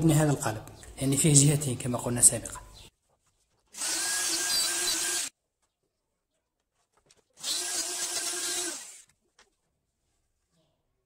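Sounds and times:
electric router motor whine: 3.8 - 5.3, 7.4 - 9.0.

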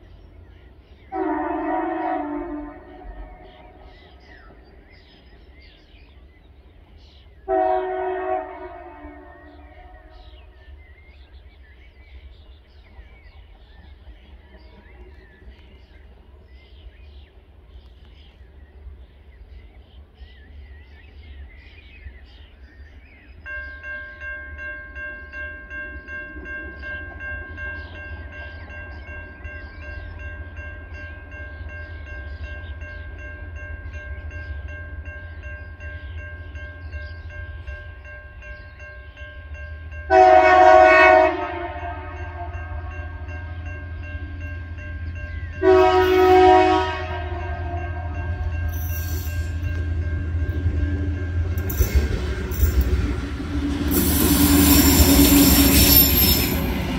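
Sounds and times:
birds chirping: 0.0 - 56.9
locomotive horn: 1.1 - 3.9, 7.4 - 10.4, 40.1 - 43.9, 45.6 - 53.0, 53.8 - 56.9
crossing warning bell ringing: 23.2 - 56.9
diesel locomotive rumble: 25.7 - 56.9.

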